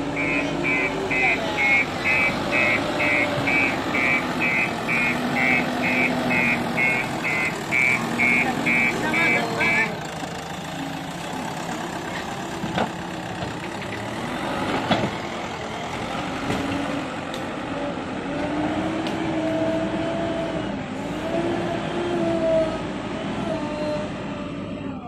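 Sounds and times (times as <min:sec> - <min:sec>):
whining engine tone: 0:00.0 - 0:11.7
diesel engine running: 0:00.0 - 0:25.0.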